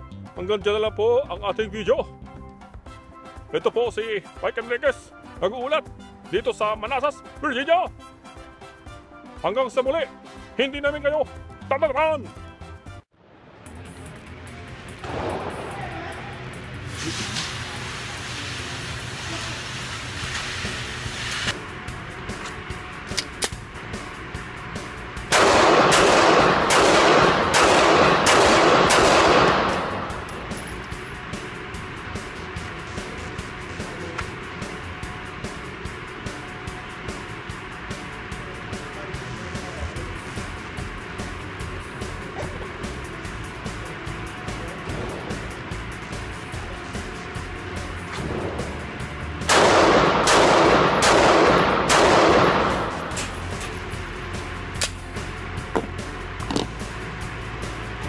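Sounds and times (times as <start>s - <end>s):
shooting range echo: 15.0s - 15.9s, 25.2s - 31.2s, 49.4s - 53.8s
faint gunshot: 25.3s - 30.2s, 49.5s - 53.2s
pistol shots: 25.3s - 30.8s, 49.4s - 53.4s.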